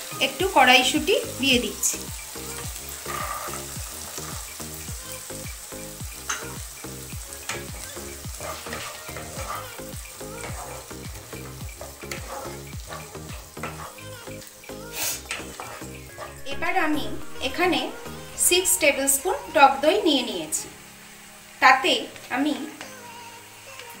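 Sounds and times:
peas sizzling in a pan: 0:00.0 - 0:24.0
wooden spatula scraping a pan: 0:02.5 - 0:04.6, 0:07.4 - 0:14.2, 0:15.0 - 0:19.7.

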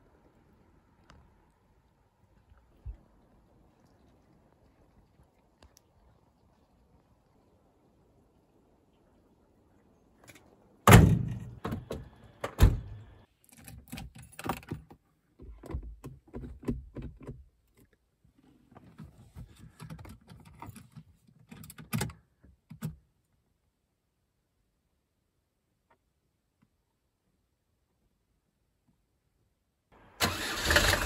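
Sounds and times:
clicks and knocks in car cabin: 0:14.0 - 0:17.8.

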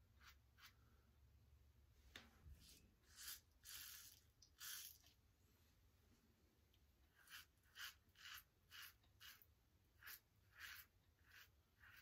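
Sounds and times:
razor scraping stubble: 0:07.1 - 0:12.0.

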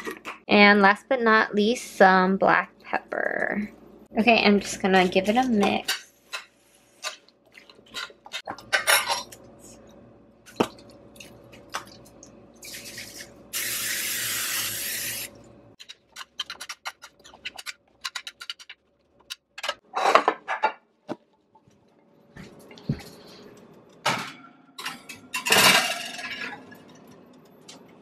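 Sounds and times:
cooking spray hissing: 0:12.6 - 0:15.4.

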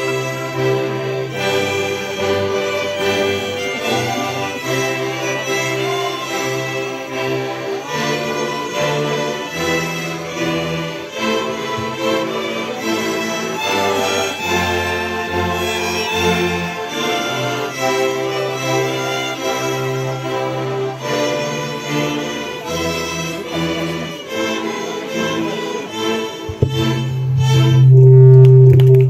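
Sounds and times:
folk string band of violins: 0:00.0 - 0:28.6
low bass notes: 0:26.5 - 0:29.0.

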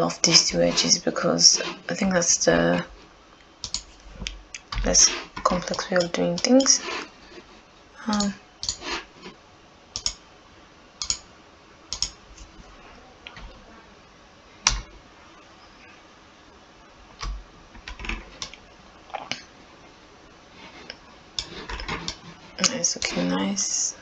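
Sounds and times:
mouse and keyboard clicks: 0:03.6 - 0:03.9, 0:08.1 - 0:08.8.

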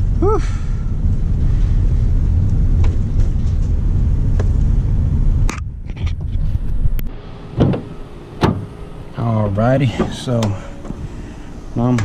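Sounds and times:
van engine and road noise: 0:00.0 - 0:12.0
thump: 0:07.6 - 0:08.7.

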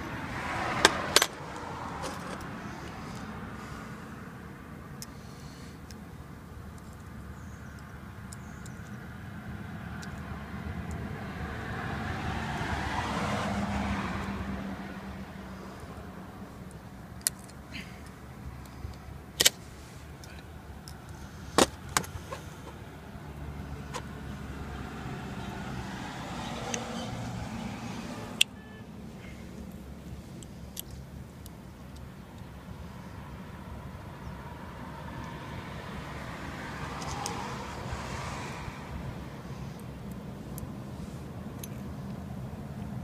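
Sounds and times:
vehicle passing: 0:00.0 - 0:04.3, 0:09.3 - 0:17.0, 0:21.0 - 0:30.4, 0:33.2 - 0:43.0
sharp metallic clicks of pliers: 0:10.0 - 0:11.1, 0:16.6 - 0:19.6.

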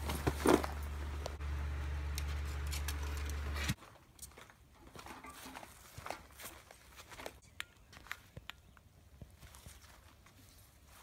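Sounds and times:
low motor hum: 0:00.0 - 0:03.8.

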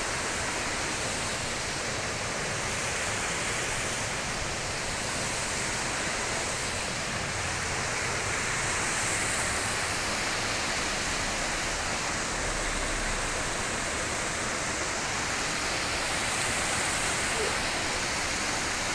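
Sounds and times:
river water rushing: 0:00.0 - 0:18.9.

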